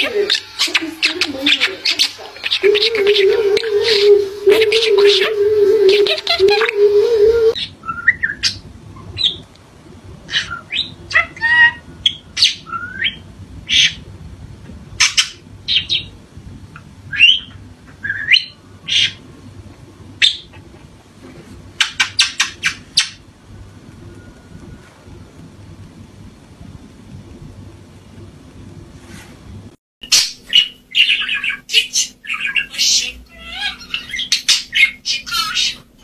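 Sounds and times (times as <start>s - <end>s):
budgerigar chirping and squawking: 0.0s - 5.2s, 10.3s - 14.0s, 17.1s - 19.2s, 20.2s - 20.6s, 21.8s - 23.2s, 30.0s - 35.9s.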